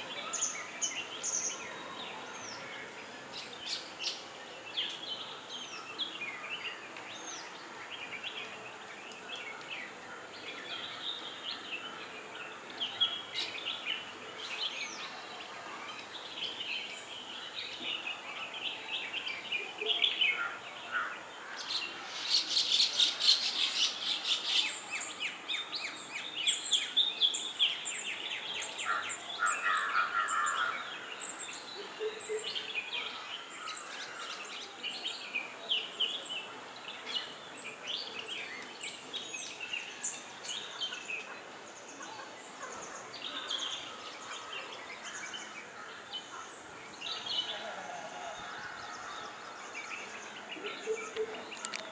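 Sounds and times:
songbirds chirping: 0.0s - 51.9s.

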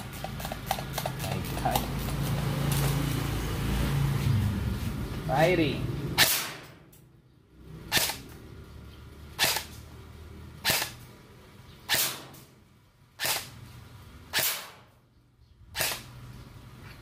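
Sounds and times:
airsoft gun firing: 6.2s - 6.7s, 9.4s - 9.8s, 10.6s - 11.0s, 11.9s - 12.4s, 13.2s - 13.6s, 14.3s - 14.9s, 15.8s - 16.1s.

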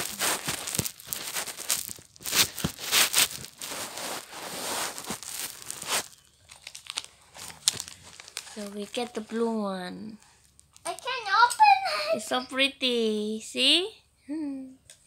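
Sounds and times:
plastic wrapper crinkling and tearing: 0.0s - 11.6s.

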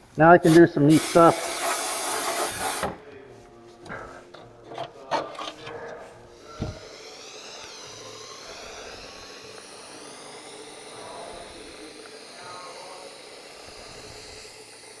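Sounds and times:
compressed air hissing from spray gun: 0.4s - 3.0s, 6.1s - 15.0s
thump: 6.6s - 6.8s.

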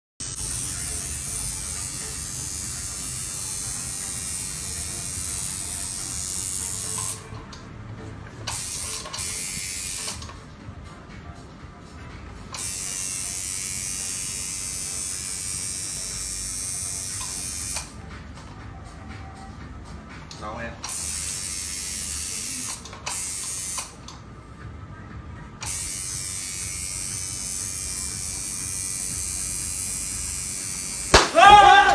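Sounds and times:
electric tattoo machine buzzing: 0.2s - 7.3s, 8.5s - 10.3s, 12.6s - 18.1s, 20.9s - 24.0s, 25.6s - 31.3s.

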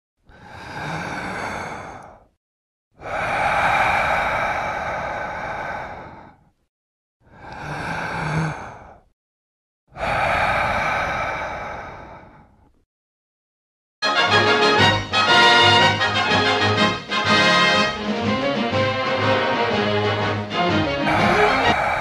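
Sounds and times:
heavy breathy exhales: 3.0s - 6.6s, 10.0s - 12.7s, 21.0s - 22.0s.

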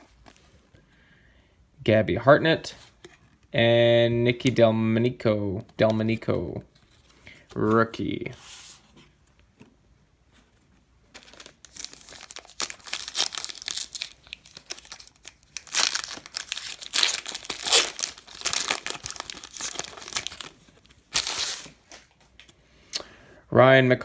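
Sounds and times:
plastic wrapper tearing and crinkling: 11.2s - 22.1s.

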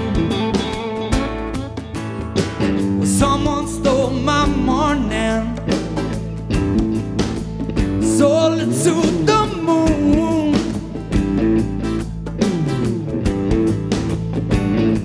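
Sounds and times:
live band playing: 0.0s - 15.0s
lead vocal singing: 3.0s - 5.8s, 8.0s - 10.9s.

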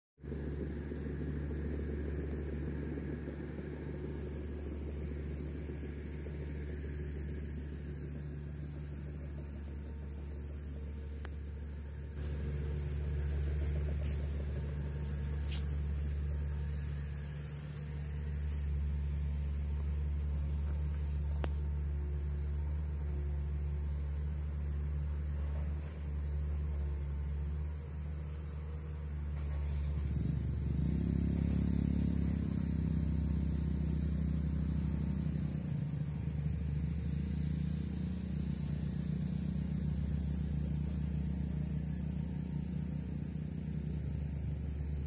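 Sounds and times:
low mechanical rumble: 0.2s - 45.0s
high-pitched hum: 0.8s - 24.2s.

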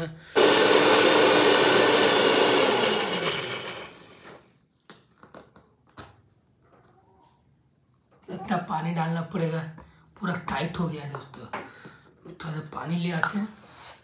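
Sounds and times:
mixer grinder motor running: 0.3s - 4.4s.

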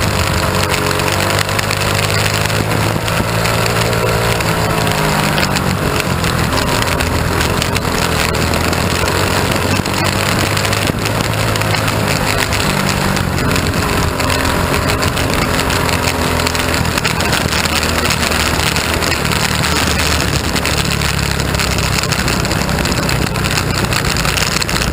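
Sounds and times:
race car engine running: 0.0s - 24.9s.

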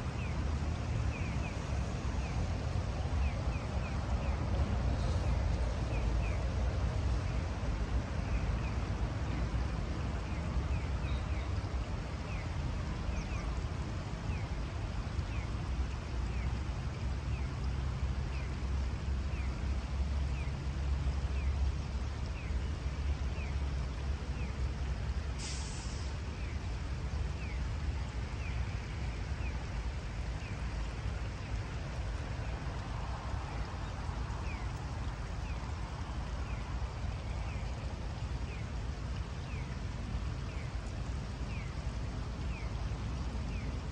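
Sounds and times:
brief hiss: 25.4s - 26.3s.

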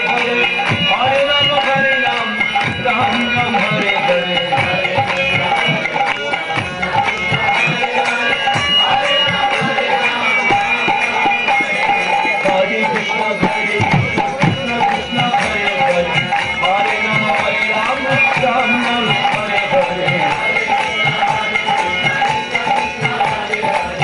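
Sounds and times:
hand drums beating: 0.0s - 24.0s.

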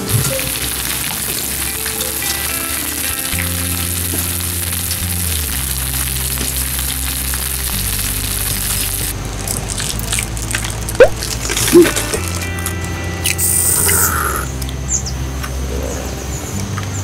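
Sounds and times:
food sizzling in hot oil: 0.0s - 12.6s
quiet background music: 0.0s - 17.0s.

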